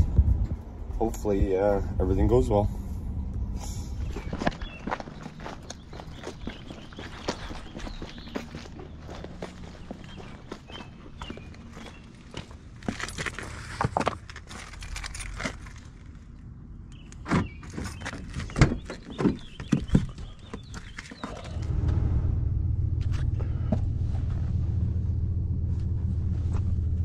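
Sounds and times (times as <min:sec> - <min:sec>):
keys jingling: 0:14.5 - 0:15.8
truck engine starting and idling: 0:21.5 - 0:27.0.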